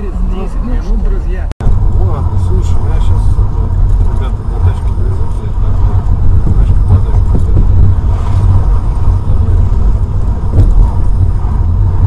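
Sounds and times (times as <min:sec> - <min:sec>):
car engine and road rumble: 0:00.0 - 0:12.0.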